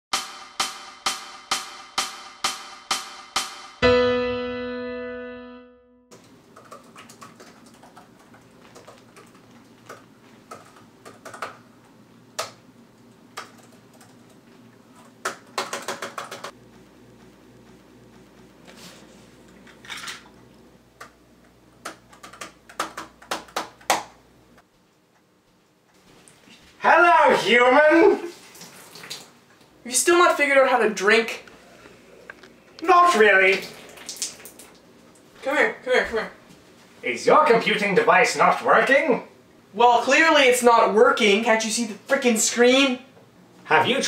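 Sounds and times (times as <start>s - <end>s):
intro music hits: 0.1s - 6.0s
laptop keyboard typing: 6.2s - 11.6s, 13.3s - 14.4s, 15.0s - 16.6s, 21.8s - 24.0s.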